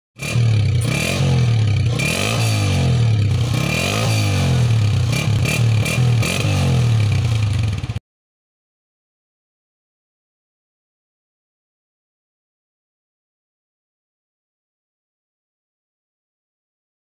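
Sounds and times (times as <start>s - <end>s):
motorcycle engine revving: 0.2s - 8.0s.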